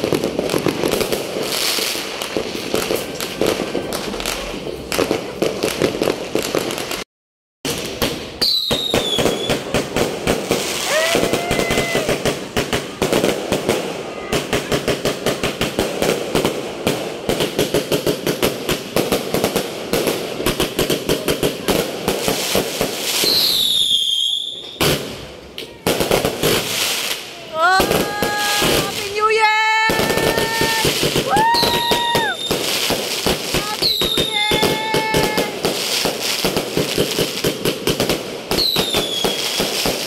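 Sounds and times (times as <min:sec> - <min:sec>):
fireworks popping and crackling: 0:00.0 - 0:07.1, 0:07.7 - 0:40.0
firework whistling: 0:07.8 - 0:09.7, 0:10.4 - 0:15.2, 0:22.2 - 0:25.1, 0:26.3 - 0:40.0.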